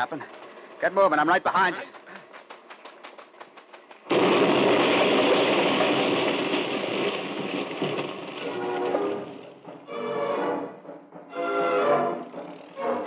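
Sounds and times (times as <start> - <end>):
rapid light knocks: 1.7 - 4.1
loud rumbling explosion: 4.1 - 10.0.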